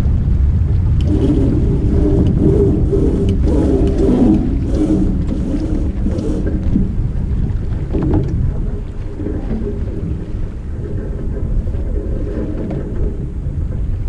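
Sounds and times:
water rushing along hull: 0.0 - 14.0
wavering low moan: 0.0 - 14.0
wind buffeting microphone: 0.0 - 14.0.

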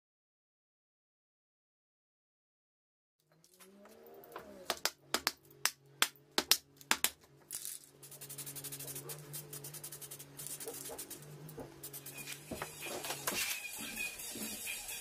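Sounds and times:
spray paint can hissing: 8.0 - 13.7
background music: 12.5 - 15.0.

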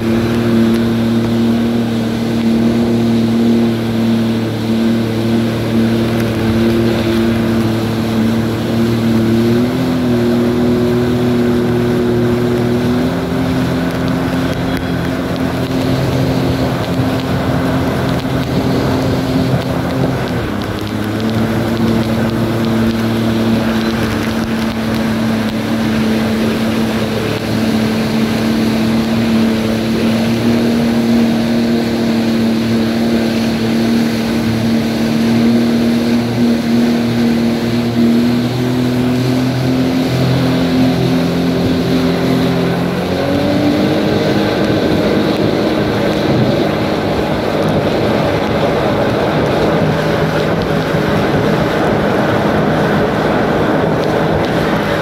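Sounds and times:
jet ski engine running: 0.0 - 55.0
rushing spray: 0.0 - 55.0
wind on microphone: 0.0 - 55.0.

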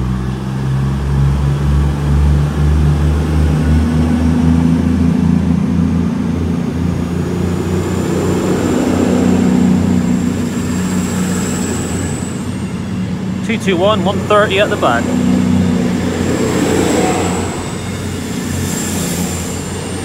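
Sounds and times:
diesel train engines pulling away: 0.0 - 20.0
thin high whine: 7.4 - 20.0.

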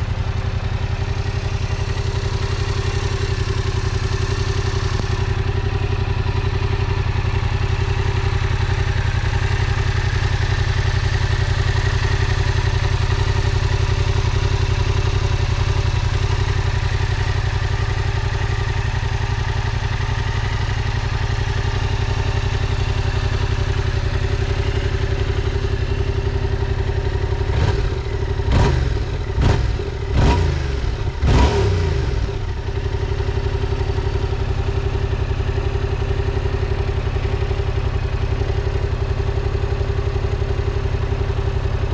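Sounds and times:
motorcycle engine idling: 0.0 - 41.9.

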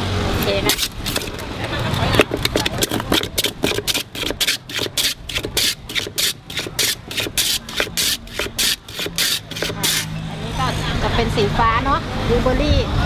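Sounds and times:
ice scraping across shaving blade: 0.6 - 10.1.

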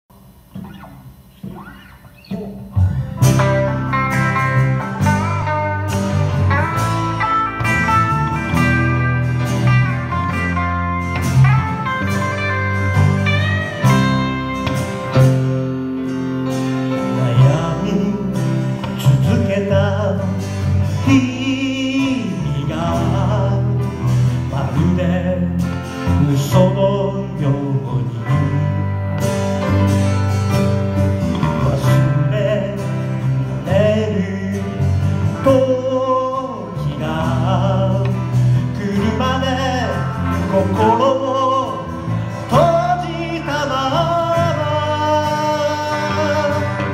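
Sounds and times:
acoustic guitar: 0.1 - 46.9
electric bass: 0.1 - 46.9
electric guitar: 0.1 - 46.9
grand piano: 2.3 - 46.9
man singing lead: 16.8 - 29.2, 31.3 - 46.9.

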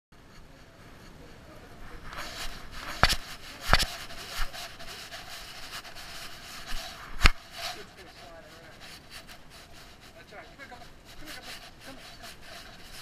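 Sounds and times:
fur brushing against camera: 1.9 - 13.0.

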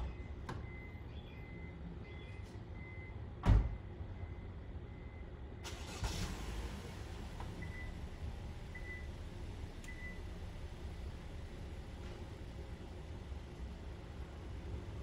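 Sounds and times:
low traffic rumble: 0.0 - 15.0.

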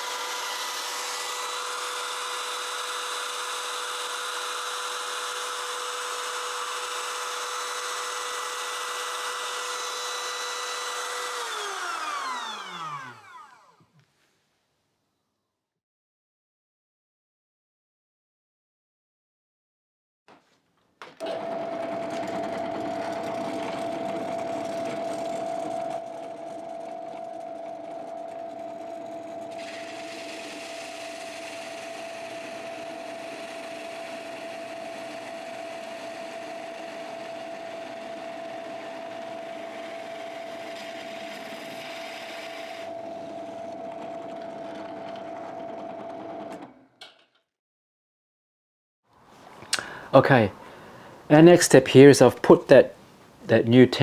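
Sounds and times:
drill press boring wood: 0.0 - 13.9, 21.1 - 47.2.

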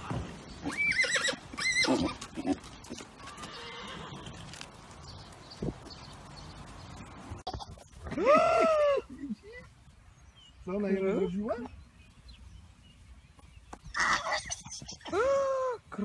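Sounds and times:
horse whinnying: 0.6 - 2.6, 3.2 - 4.6, 14.0 - 15.4.

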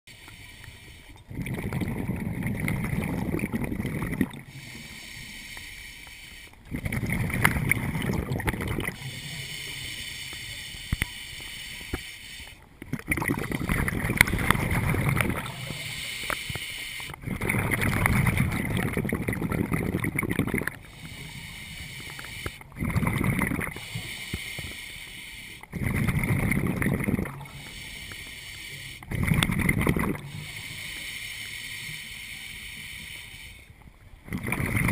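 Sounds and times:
regulator inhalation hiss: 0.1 - 1.2, 4.4 - 6.6, 8.9 - 12.7, 15.4 - 17.2, 20.8 - 22.7, 23.7 - 25.7, 27.4 - 29.1, 30.2 - 33.8
bubbling underwater exhalations: 1.3 - 4.5, 6.7 - 9.1, 12.8 - 16.0, 17.2 - 20.8, 22.7 - 23.8, 25.7 - 27.6, 29.1 - 30.3, 34.2 - 34.9.

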